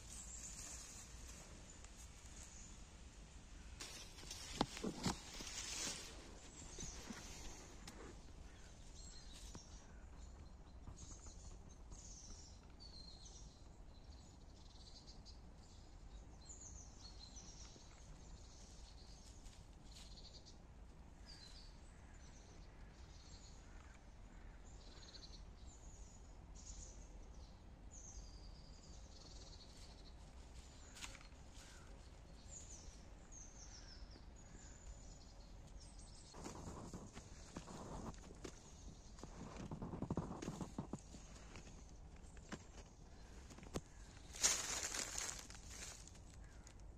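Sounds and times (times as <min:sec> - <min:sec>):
rustle: 0:00.0 - 0:13.5, 0:16.4 - 0:20.6, 0:28.0 - 0:46.9
faint low background noise: 0:00.0 - 0:46.9
small birds chirping and singing: 0:03.6 - 0:20.6, 0:21.2 - 0:46.9.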